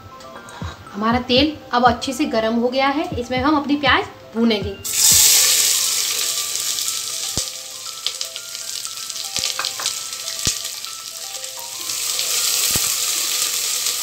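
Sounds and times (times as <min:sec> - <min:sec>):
onions sizzling in hot oil: 0:04.8 - 0:14.0.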